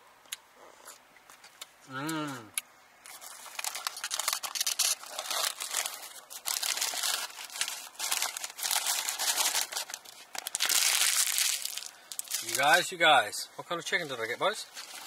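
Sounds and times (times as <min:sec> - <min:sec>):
food packaging crinkling: 0:03.0 - 0:12.9, 0:14.4 - 0:15.0.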